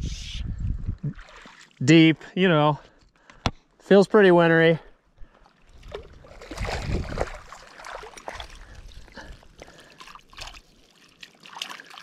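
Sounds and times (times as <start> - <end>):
water sloshing: 5.3 - 12.0.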